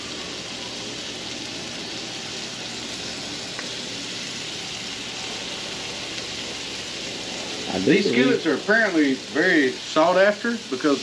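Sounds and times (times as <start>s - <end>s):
burger patties sizzling: 0.0s - 11.0s
light tick: 3.5s - 3.7s.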